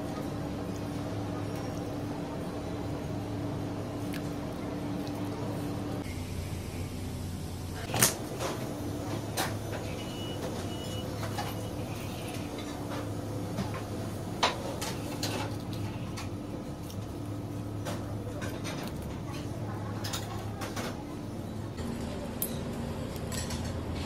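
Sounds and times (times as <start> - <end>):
steady low hum: 0.0 - 9.8.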